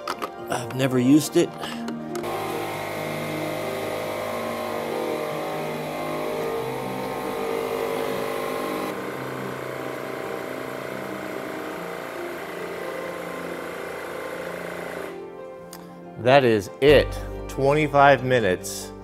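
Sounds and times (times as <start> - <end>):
tire inflator compressor running: 1.4 - 15.4.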